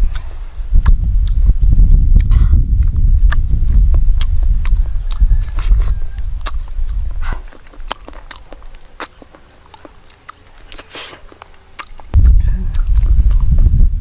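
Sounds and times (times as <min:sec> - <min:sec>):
wet mouth clicks and smacks: 0:00.0 - 0:01.4, 0:02.2 - 0:13.6
person eating juicy melon: 0:00.0 - 0:01.5, 0:02.2 - 0:13.6
loud low rumble: 0:00.6 - 0:07.4, 0:12.1 - 0:14.0
slurping bite: 0:02.2 - 0:13.5.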